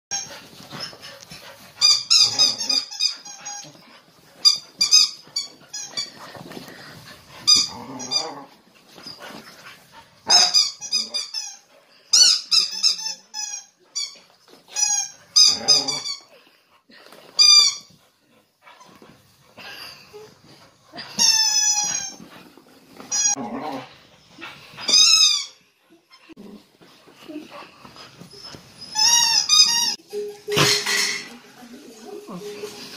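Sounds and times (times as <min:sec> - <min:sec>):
rubber squeaky ball squeaking: 0:01.8 - 0:03.8, 0:04.4 - 0:06.2, 0:07.4 - 0:08.4, 0:10.3 - 0:16.3, 0:21.1 - 0:22.2, 0:28.3 - 0:30.0.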